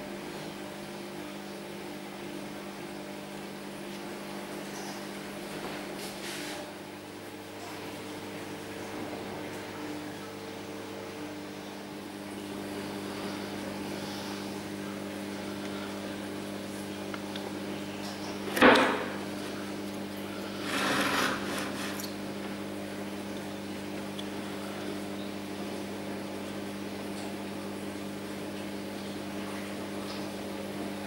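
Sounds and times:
wood scraping: 0:20.5 - 0:22.1.

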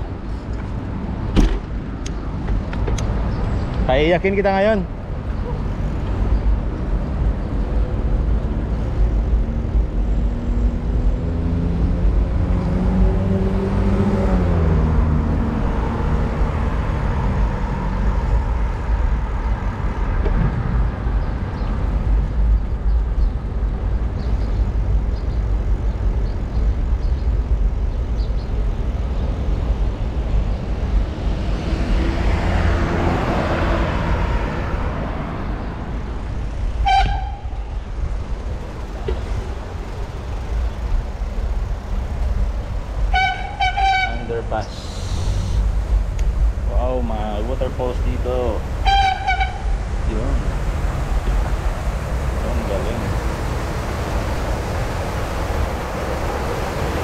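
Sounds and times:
vehicle engine passing: 0:09.3 - 0:22.3, 0:30.4 - 0:57.0
steady low rumble: 0:18.0 - 0:31.6.

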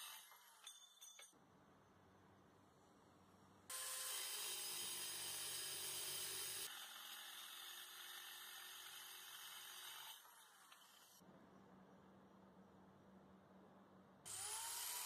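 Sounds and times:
circular saw cutting aluminum: 0:00.0 - 0:00.8, 0:03.7 - 0:11.2, 0:14.3 - 0:15.0.

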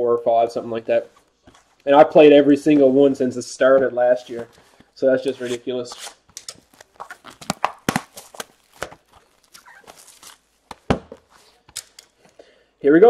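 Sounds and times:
cards and packaging rustling: 0:04.1 - 0:12.4.

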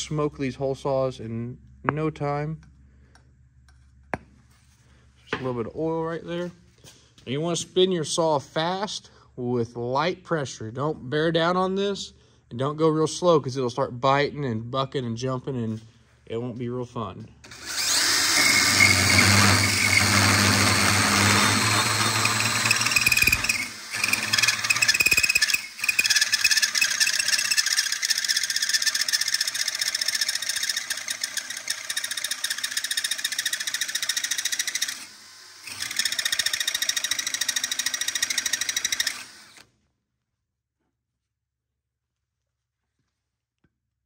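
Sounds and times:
hole saw cutting metal tube: 0:17.5 - 0:39.6.

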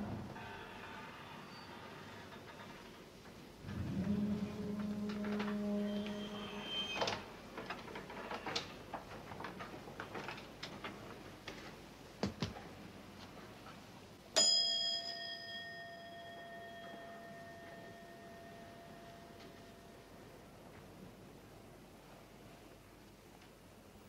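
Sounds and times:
desk bell ringing: 0:14.4 - 0:20.0.

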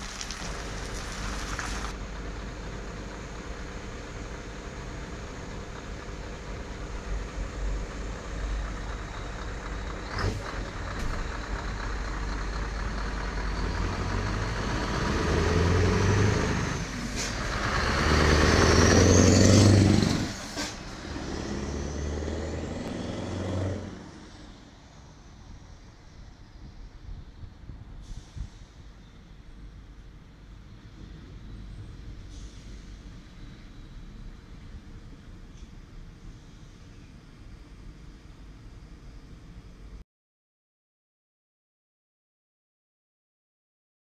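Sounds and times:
truck diesel engine passing: 0:00.0 - 0:26.6.

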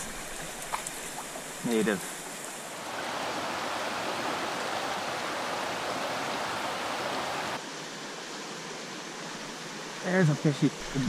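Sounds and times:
stream water flowing over rocks: 0:00.0 - 0:11.0.

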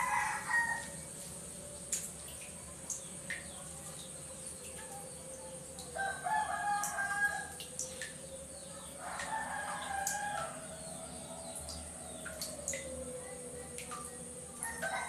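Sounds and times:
rooster crowing: 0:00.0 - 0:01.0, 0:06.0 - 0:07.6, 0:09.0 - 0:11.6, 0:14.6 - 0:15.0
faint high-pitched hum: 0:00.0 - 0:15.0.

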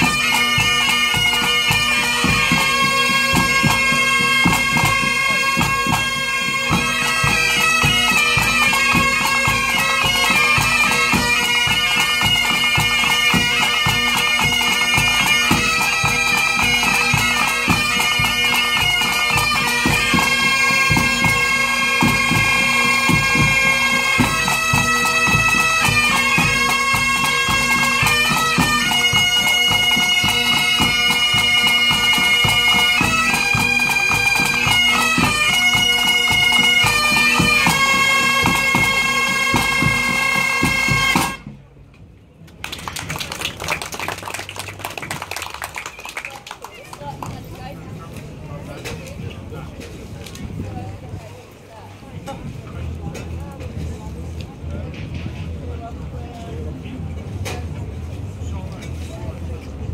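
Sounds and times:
bagpipes melody over drones: 0:00.0 - 0:41.4.

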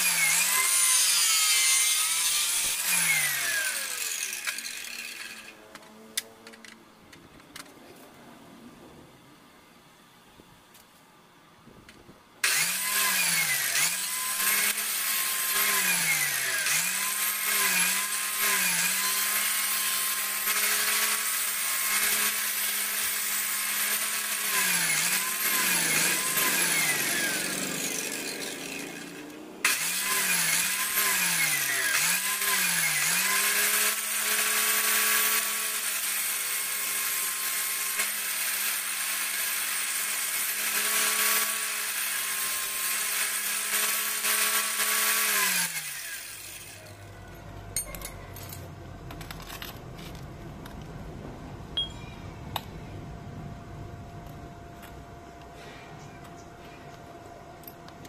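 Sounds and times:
high-speed power tool whining: 0:00.0 - 0:06.7, 0:12.4 - 0:47.0.

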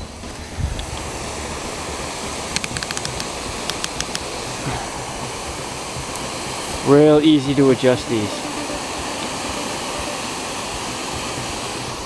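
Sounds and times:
small sharp clicks: 0:02.6 - 0:04.3.

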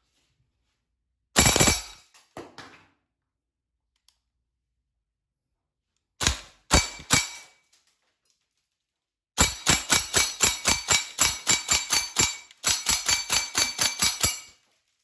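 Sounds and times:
airsoft rifle rapid shots: 0:01.4 - 0:02.0, 0:06.2 - 0:07.4, 0:09.4 - 0:14.5.

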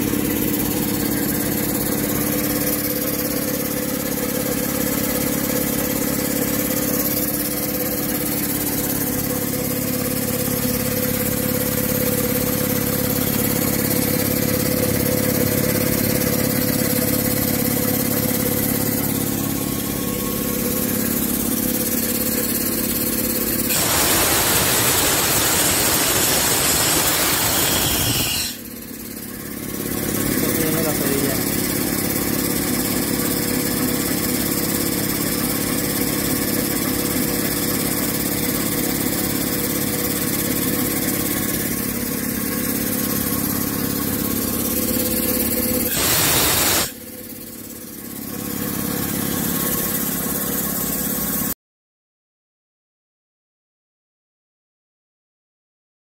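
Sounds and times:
air compressor drone: 0:00.0 - 0:51.5
air hissing from valve: 0:23.7 - 0:28.7, 0:45.9 - 0:47.0.

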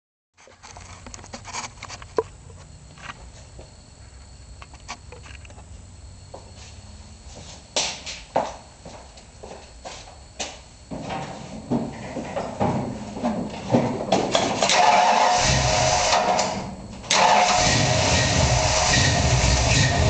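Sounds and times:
footsteps on concrete floor: 0:00.4 - 0:14.4.

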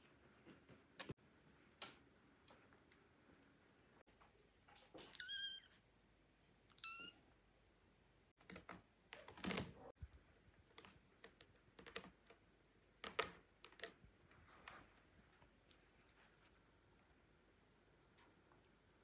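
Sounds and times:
kitten meowing: 0:05.1 - 0:05.8, 0:06.7 - 0:07.4.

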